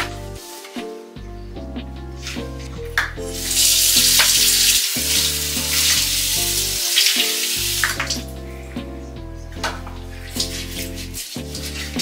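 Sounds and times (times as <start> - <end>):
background music: 0.0 - 12.0
loud steady hiss: 3.3 - 8.3.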